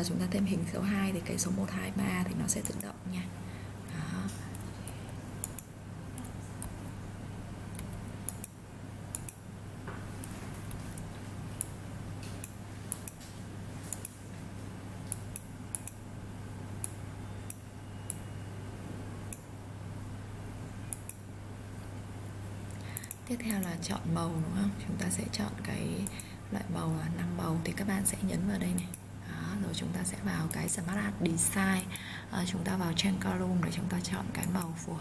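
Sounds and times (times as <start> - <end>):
low electrical hum: 0.0 - 35.0
computer mouse clicks: 2.5 - 3.0, 4.2 - 6.8, 7.7 - 9.4, 10.0 - 14.2, 15.0 - 16.0, 16.8 - 18.3, 19.2 - 19.5, 20.8 - 22.0, 22.7 - 23.9, 26.0 - 26.3, 34.4 - 34.8.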